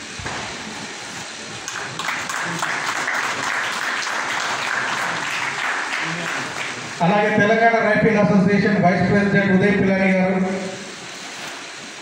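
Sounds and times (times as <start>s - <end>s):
audience applauding: 1.6s - 7.0s.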